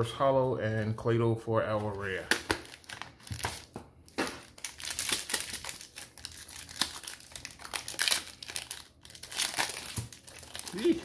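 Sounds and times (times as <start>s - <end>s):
foil wrapper crinkling: 2.3s - 11.0s.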